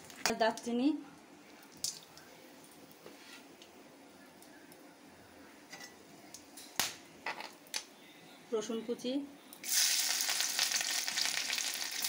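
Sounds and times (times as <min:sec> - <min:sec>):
faint steady hiss: 0:00.0 - 0:12.0
spices ticking in hot oil: 0:01.6 - 0:02.3, 0:09.5 - 0:12.0.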